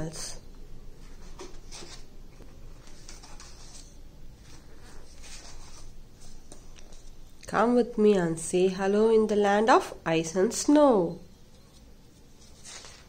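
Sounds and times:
book pages rustling: 1.0 - 7.3, 11.6 - 13.0.

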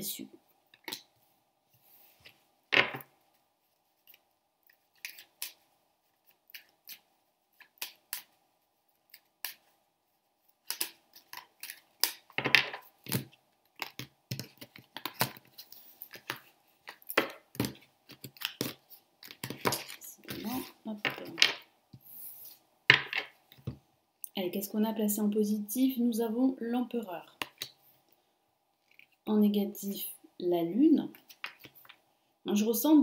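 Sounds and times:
cards being shuffled: 10.6 - 21.6.

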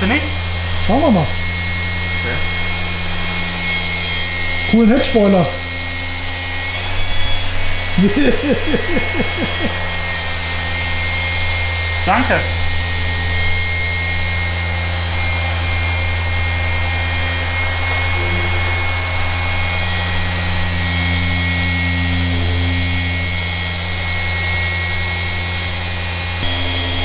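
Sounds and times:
polisher motor whine: 0.0 - 27.0.

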